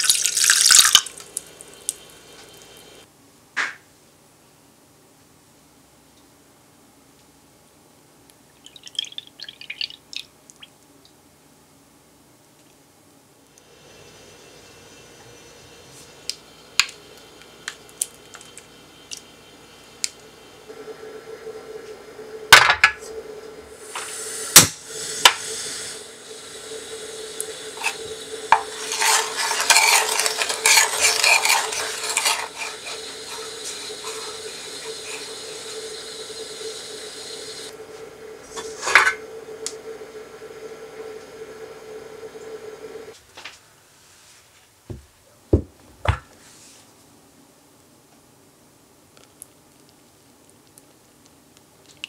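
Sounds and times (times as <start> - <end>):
gas burner hiss: 0.0 - 3.1, 13.6 - 43.2
wooden spoon scraping saucepan: 27.4 - 36.0.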